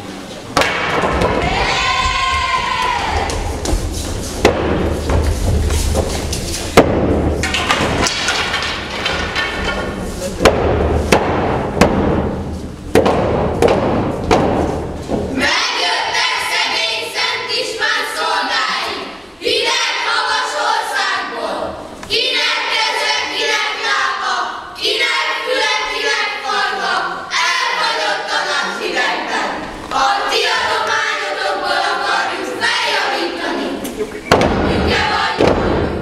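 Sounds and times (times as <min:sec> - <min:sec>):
wooden staffs thumping on floor: 0:00.6 - 0:01.5, 0:03.2 - 0:15.4, 0:34.3 - 0:34.8
boys shouting and chanting: 0:01.2 - 0:03.7.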